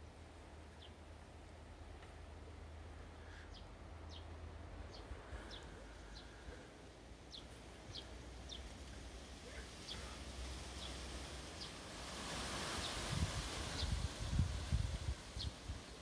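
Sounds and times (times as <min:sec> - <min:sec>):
small bird calling: 0:09.4 - 0:11.0.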